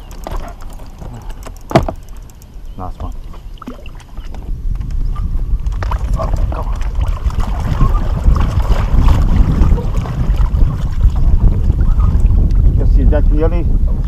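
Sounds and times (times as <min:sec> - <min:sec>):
small ticks and chirps: 0:00.0 - 0:04.3
wind buffeting microphone: 0:00.0 - 0:14.0.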